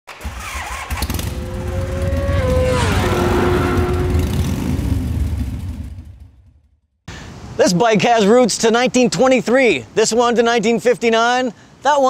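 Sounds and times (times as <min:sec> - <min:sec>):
deep engine-like rumble: 0:01.0 - 0:06.5
sustained tone sweeping down: 0:01.2 - 0:05.7.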